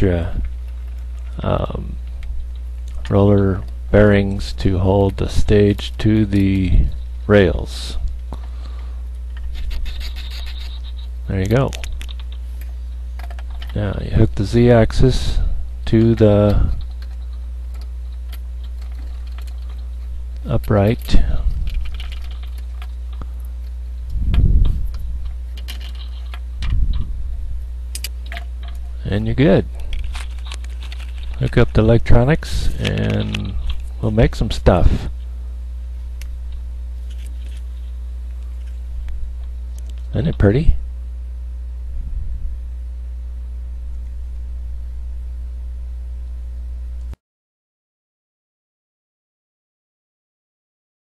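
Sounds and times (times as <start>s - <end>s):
faint low rumble: 0.0s - 47.2s
steady low hum: 0.0s - 47.2s
dull low thumps: 24.0s - 25.5s, 26.6s - 27.8s, 41.8s - 42.8s
metal parts clicking and tapping: 28.0s - 28.9s.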